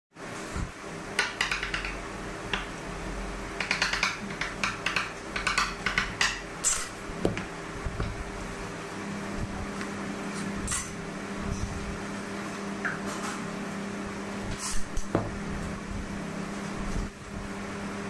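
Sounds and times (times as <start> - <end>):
steady low hum: 0.2 - 18.0
knife clicking and scraping on board: 3.6 - 7.4.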